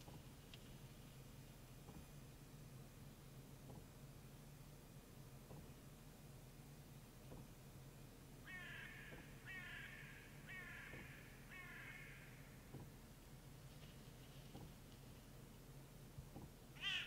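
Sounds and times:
raven calling: 8.4 - 12.6, 16.8 - 17.0.

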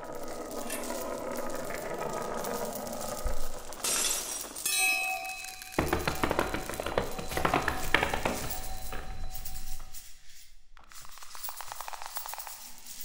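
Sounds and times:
rapid clicks and rattles: 0.0 - 4.7, 5.4 - 10.1, 10.8 - 13.0
cluster of ringing tones: 0.2 - 10.0.

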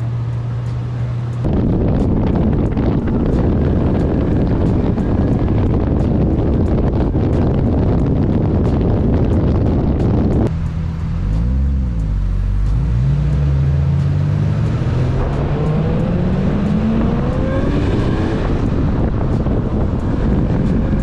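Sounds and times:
car engine accelerating: 0.0 - 21.0
road noise: 0.0 - 21.0
wind noise: 1.4 - 10.6, 13.9 - 21.0.

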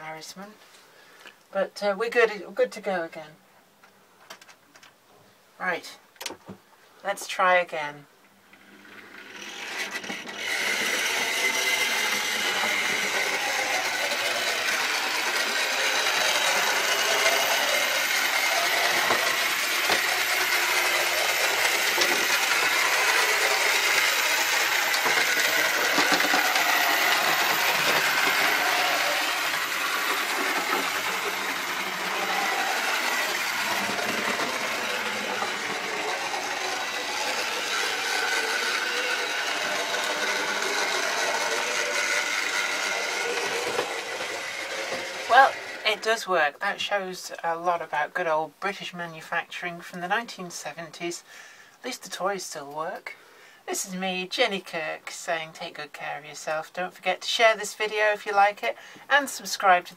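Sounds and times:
model train motor running: 8.5 - 46.2.

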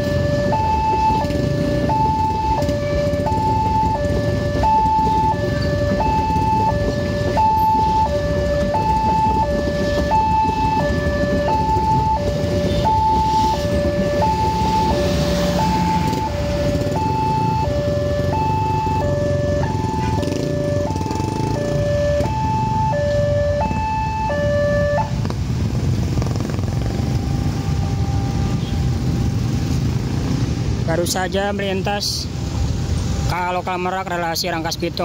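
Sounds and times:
level-crossing two-tone alarm: 0.0 - 25.1
train coaches rumbling on rails: 1.0 - 22.4.

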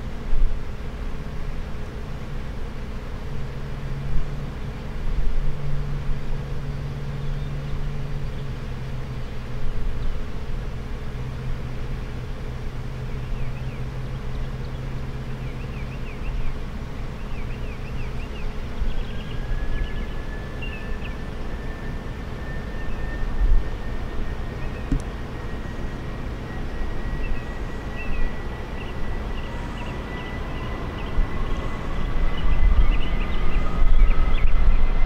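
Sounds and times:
jet engines humming: 0.0 - 35.0
jet engine whine rising: 18.1 - 35.0.

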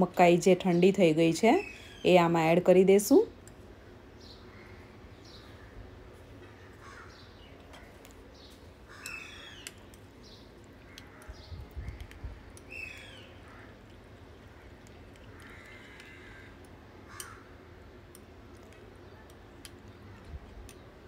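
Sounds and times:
birds calling: 4.2 - 21.0.

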